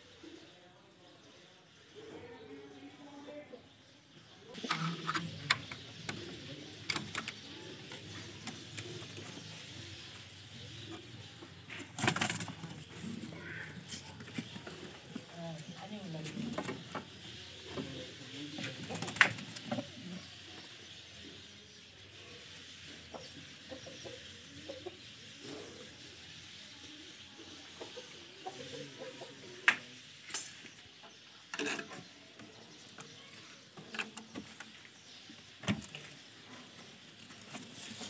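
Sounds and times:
pigeons cooing: 0:04.4 - 0:21.5.

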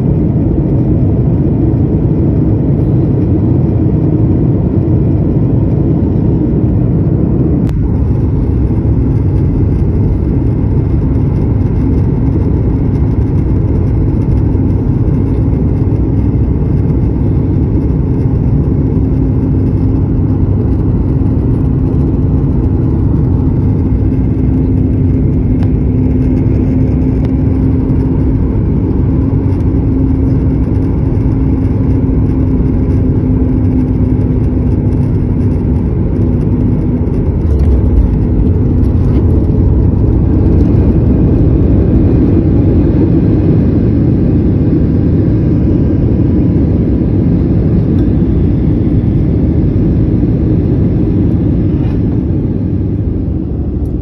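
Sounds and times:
jet engine rumble: 0:00.0 - 0:54.0
steady hum: 0:00.0 - 0:54.0.

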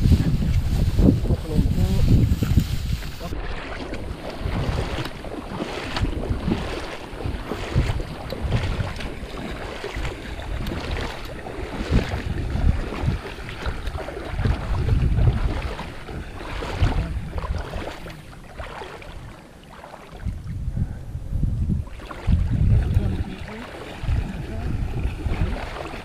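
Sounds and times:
water splashing around wading legs: 0:00.0 - 0:20.4, 0:21.8 - 0:26.0
wind buffeting microphone: 0:00.0 - 0:26.0.

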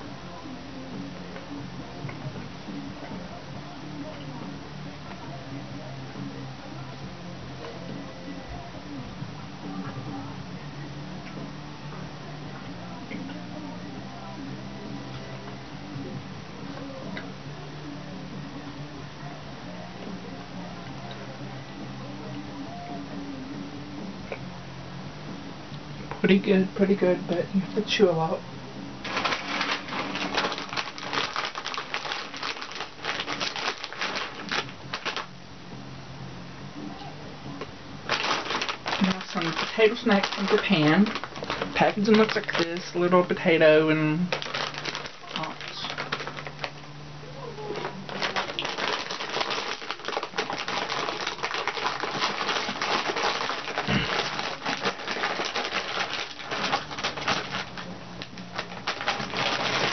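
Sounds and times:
plastic bag crinkling: 0:29.0 - 0:35.3, 0:38.1 - 0:46.9, 0:47.6 - 0:59.9.

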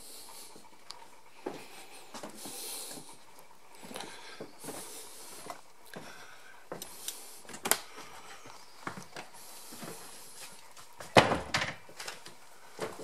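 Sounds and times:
footsteps: 0:01.4 - 0:13.0.

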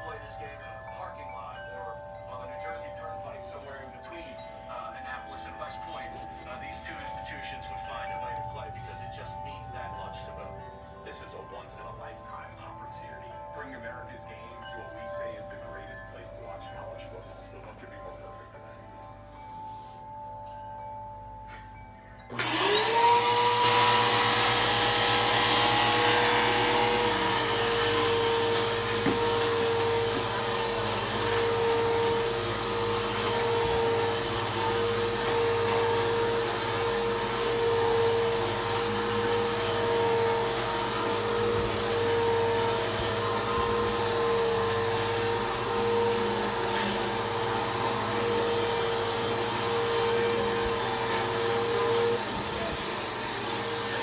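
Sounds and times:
vacuum cleaner motor whining: 0:22.3 - 0:54.0.

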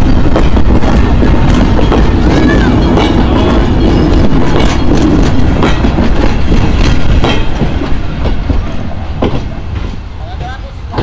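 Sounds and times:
wheel clacks: 0:00.0 - 0:08.6
train coaches rumbling past: 0:00.0 - 0:11.0.

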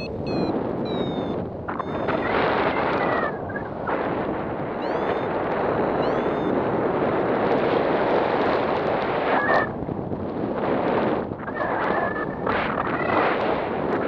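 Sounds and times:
faint whistling tones: 0:00.0 - 0:02.3
wind rushing over microphone: 0:00.0 - 0:14.0.

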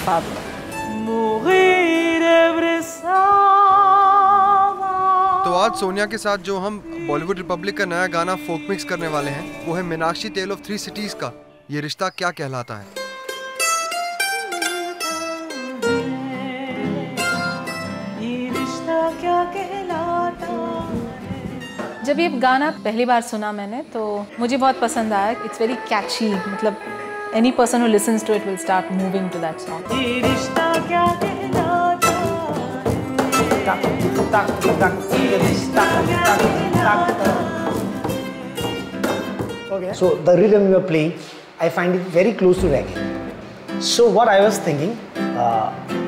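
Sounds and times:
person singing: 0:00.8 - 0:11.7, 0:14.2 - 0:22.3, 0:28.3 - 0:39.0
mandolin plucked melody: 0:12.9 - 0:22.8, 0:28.0 - 0:40.3.

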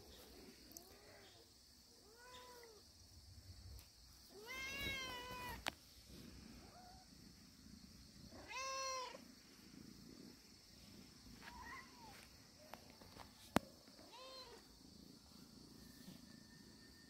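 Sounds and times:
cat meowing: 0:04.3 - 0:05.6, 0:08.4 - 0:09.2.

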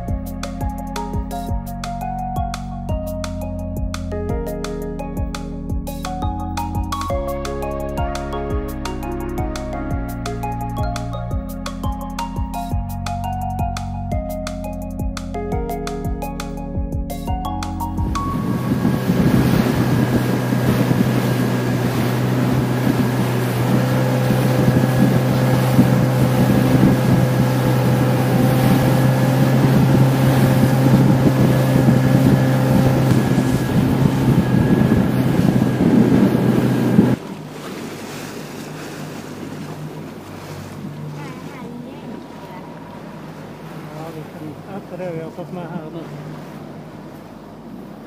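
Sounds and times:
outboard motor drone: 0:00.0 - 0:48.0
wind noise on microphone: 0:17.8 - 0:37.2
rushing water: 0:17.8 - 0:48.0.

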